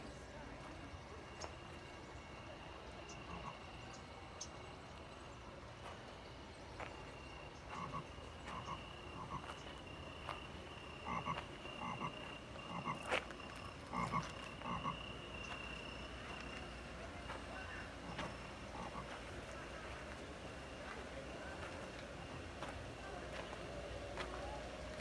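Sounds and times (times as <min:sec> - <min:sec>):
croaking animal calls: 0:02.2 - 0:04.7, 0:07.2 - 0:20.1.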